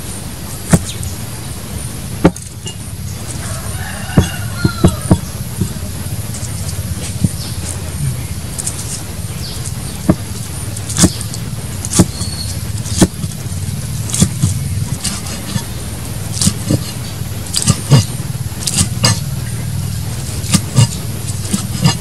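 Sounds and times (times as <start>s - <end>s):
low background hum: 0.0s - 22.0s
cleaver chopping on wooden board: 0.7s - 1.0s, 2.2s - 3.4s, 4.1s - 5.8s, 6.4s - 7.8s, 10.0s - 10.3s, 10.9s - 13.4s, 14.1s - 15.7s, 16.3s - 19.2s, 20.2s - 22.0s.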